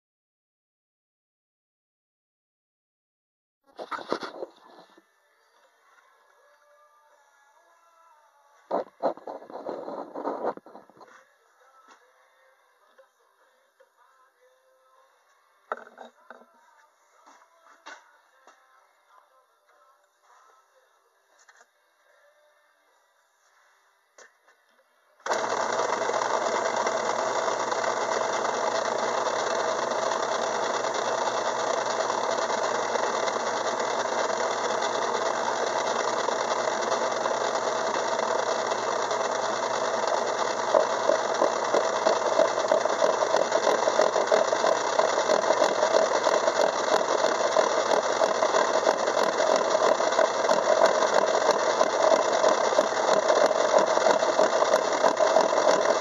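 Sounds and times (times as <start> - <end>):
gear cutter rapid ticking: 25.3 - 56.0
metal lathe running: 25.3 - 56.0.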